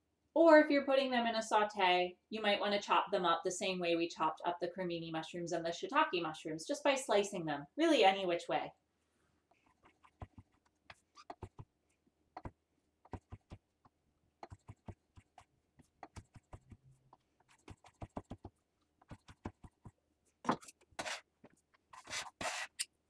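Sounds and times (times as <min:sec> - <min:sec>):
knife scraping: 0:20.5 - 0:21.3, 0:21.9 - 0:22.9.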